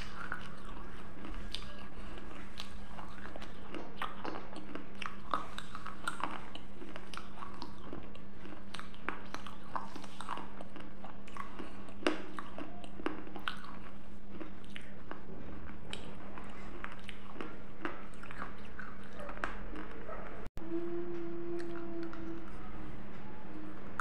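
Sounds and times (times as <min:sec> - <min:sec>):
person chewing and biting: 0:00.0 - 0:20.1
steady low hum: 0:00.0 - 0:24.0.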